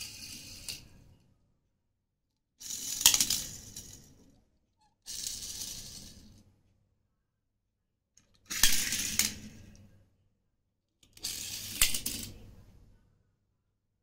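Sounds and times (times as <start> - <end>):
toy cars rolling on tiled floor: 0.0 - 0.9, 2.6 - 4.4, 5.0 - 6.4, 8.4 - 9.8, 11.1 - 12.5.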